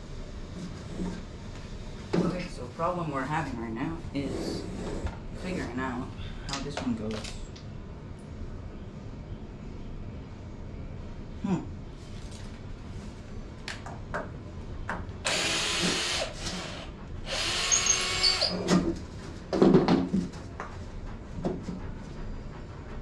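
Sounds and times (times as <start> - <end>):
power drill running: 15.2 - 18.6
wooden boards knocking and clattering: 19.5 - 20.3.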